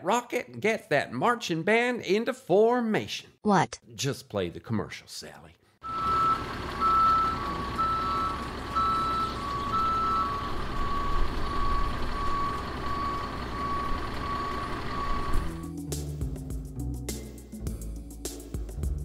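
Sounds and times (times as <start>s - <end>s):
engine rumble: 5.8s - 15.7s
higher alarm beep: 5.8s - 15.7s
truck reversing alarm beeping: 5.8s - 15.7s.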